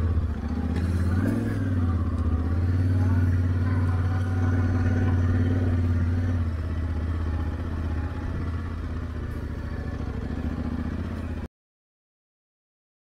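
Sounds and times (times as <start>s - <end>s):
motorcycle engine running: 0.0s - 11.5s.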